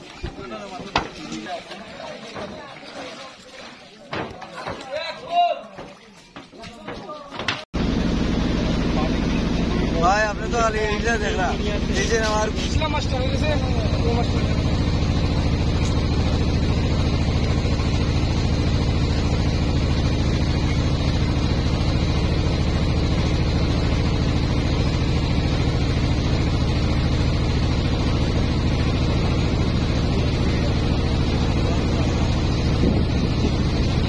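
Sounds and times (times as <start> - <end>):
motorboat engine running: 7.8 - 34.0.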